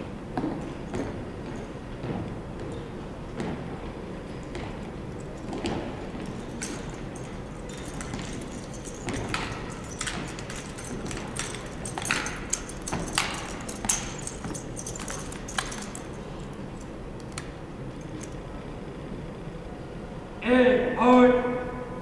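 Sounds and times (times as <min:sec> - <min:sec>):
rifles clacking and slapping: 0:04.3 - 0:18.5.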